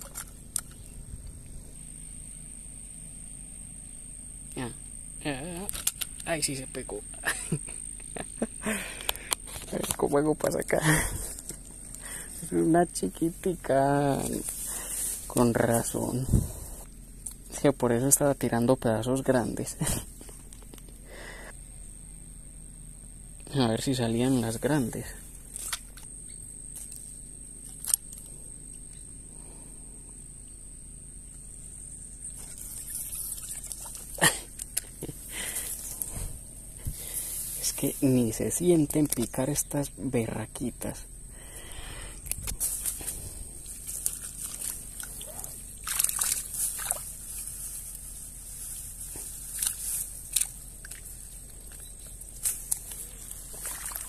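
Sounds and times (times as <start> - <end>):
high-pitched insect trill: 0.0 - 54.0
rustling near microphone: 8.7 - 17.0, 32.2 - 39.3, 41.5 - 54.0
creek water splashing: 32.4 - 34.9, 43.6 - 51.8, 52.4 - 54.0.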